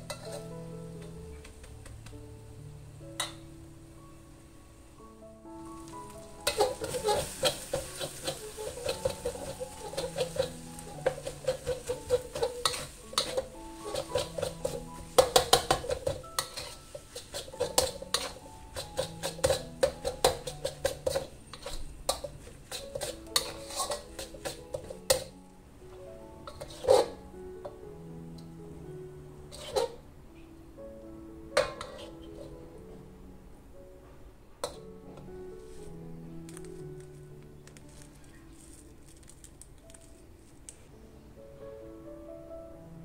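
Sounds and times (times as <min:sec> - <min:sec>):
metal spatula scraping a wok: 0:00.0 - 0:00.6, 0:06.3 - 0:25.3, 0:26.4 - 0:27.2, 0:29.5 - 0:30.0, 0:31.6 - 0:32.6, 0:34.6 - 0:34.8
background music: 0:00.0 - 0:43.0.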